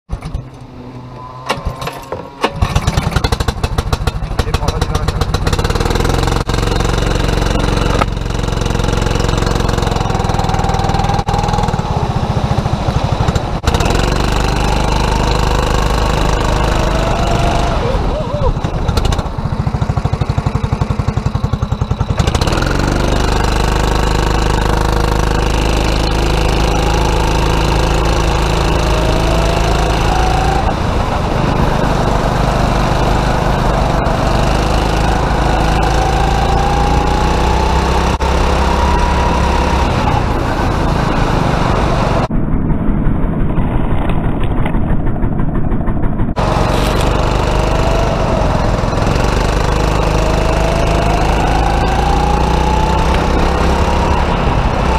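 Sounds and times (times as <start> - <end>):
kart engine running hard: 0.2 - 54.9.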